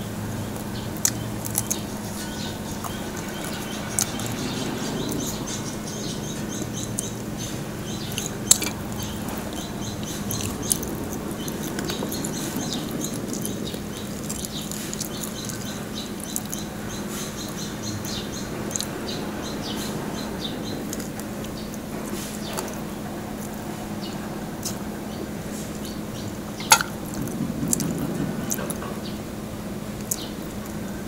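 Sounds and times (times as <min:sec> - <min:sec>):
steady low hum: 0:00.0 - 0:31.0
chewing and crunching crispy skin: 0:00.6 - 0:07.2.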